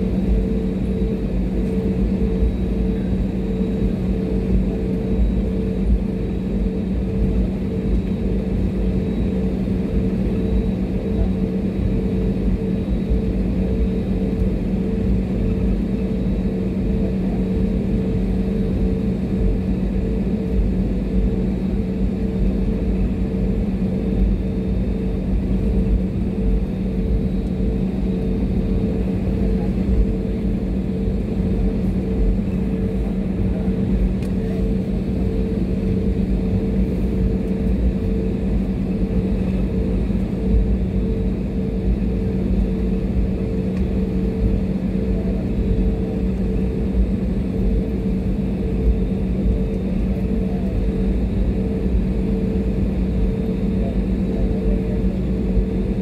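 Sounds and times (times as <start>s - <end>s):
jet engine rumble and drone: 0.0s - 56.0s.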